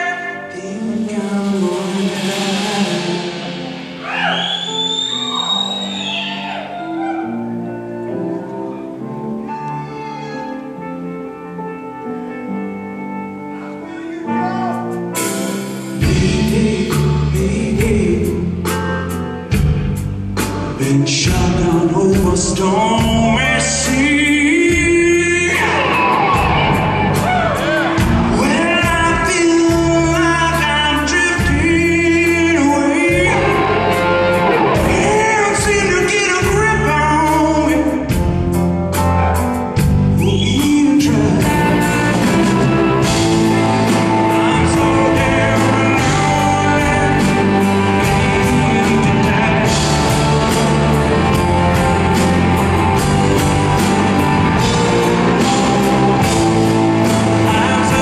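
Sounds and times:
man singing: 0.0 - 4.8, 13.6 - 15.3, 15.9 - 19.2, 20.6 - 26.7, 27.6 - 38.5, 40.1 - 58.0
blues rock band playing: 0.0 - 58.0
cymbals: 0.5 - 7.3.

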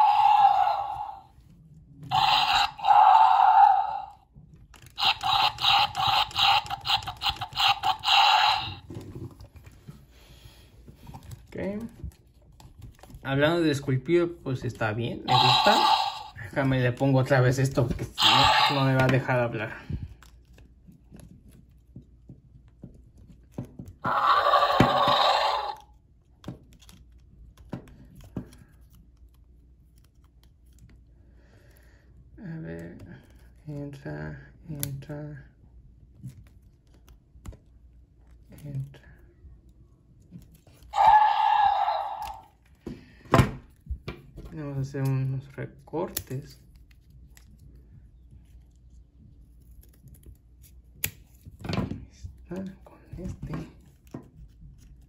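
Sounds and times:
toy dinosaur pulsing call: 0.0 - 1.3, 2.1 - 4.2, 5.0 - 8.9, 15.3 - 16.4, 18.2 - 19.0, 24.0 - 25.8, 40.9 - 42.5.

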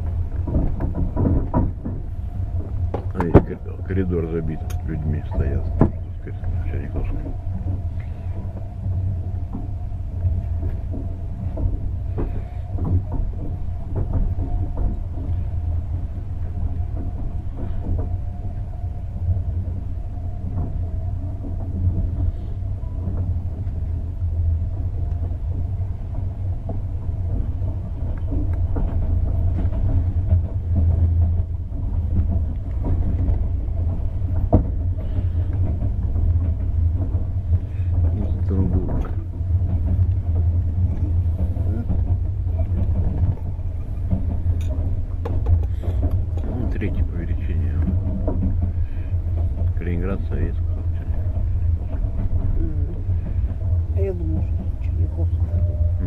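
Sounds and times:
faint steady hum: 0.0 - 56.0
train wheels rumbling: 0.0 - 56.0
clicks and knocks: 26.7 - 52.6.

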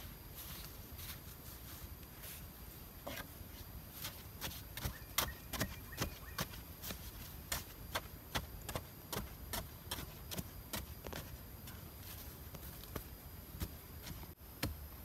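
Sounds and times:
hand tool digging into earth: 4.0 - 11.3.

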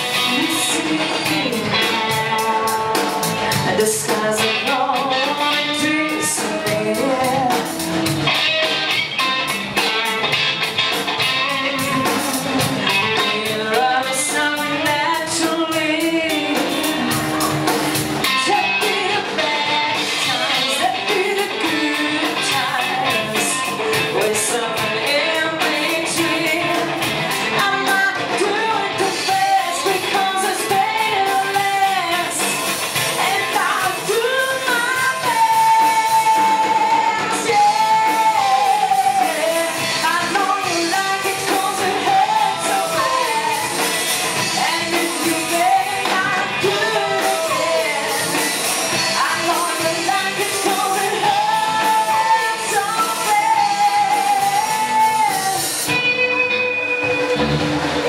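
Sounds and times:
singer singing into microphone: 0.0 - 8.4, 11.4 - 58.0
bass guitar: 0.0 - 58.0
drums steady beat: 0.0 - 58.0
electric guitar: 0.0 - 58.0.

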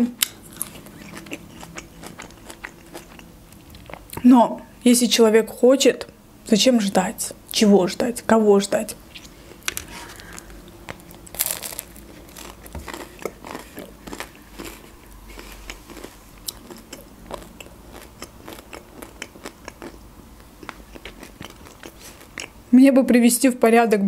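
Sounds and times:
chewing with mouth clicks: 0.2 - 4.2, 9.1 - 22.6
crunch of bread crust: 9.2 - 20.0.

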